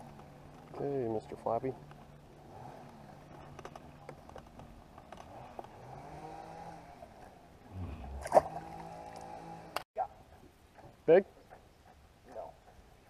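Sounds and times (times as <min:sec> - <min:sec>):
faint motor hum: 0:05.8 - 0:09.8.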